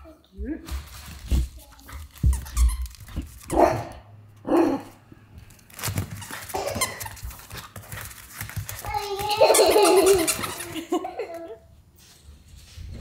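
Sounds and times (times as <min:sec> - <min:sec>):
dog barking: 0:03.5 - 0:05.0.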